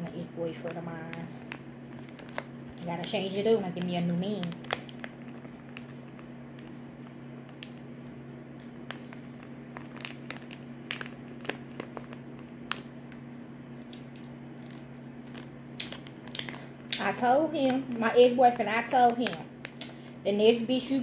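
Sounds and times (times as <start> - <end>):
steady low hum: 0.0 - 21.0
foil pouch crinkling: 0.1 - 20.1.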